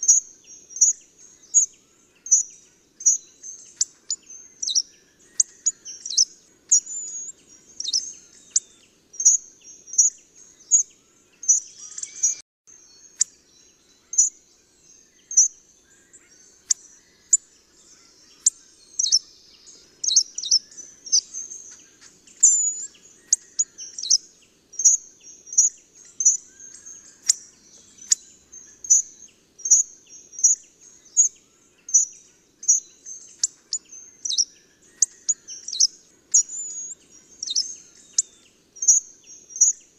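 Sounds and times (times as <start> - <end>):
bird call notes: 24.8 - 39.0.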